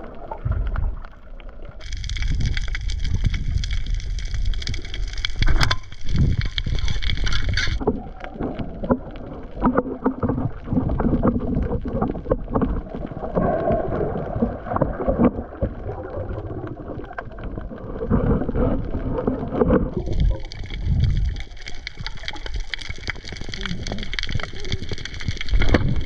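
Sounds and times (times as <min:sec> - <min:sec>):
small underwater clicks and knocks: 0:00.0 - 0:26.0
underwater rumble of moving water: 0:00.0 - 0:26.0.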